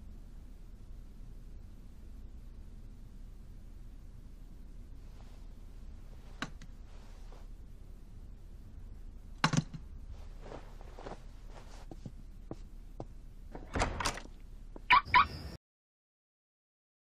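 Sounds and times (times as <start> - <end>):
scuffling: 10.0 - 13.6.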